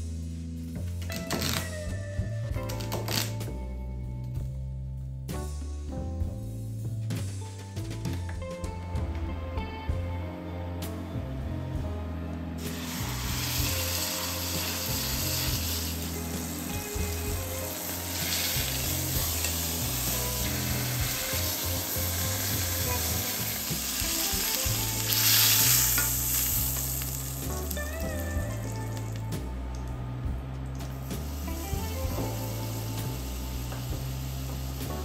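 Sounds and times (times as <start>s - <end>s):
soft background music: 0.0s - 35.0s
meat sizzling in hot oil: 12.6s - 28.8s, 31.1s - 35.0s.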